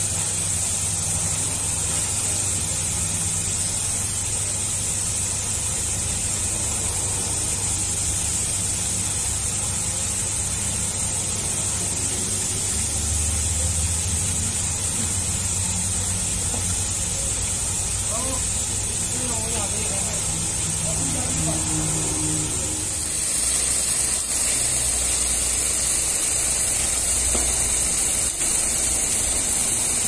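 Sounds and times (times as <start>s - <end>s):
constant high hiss: 0.0s - 30.0s
machine low hum: 14.0s - 25.6s.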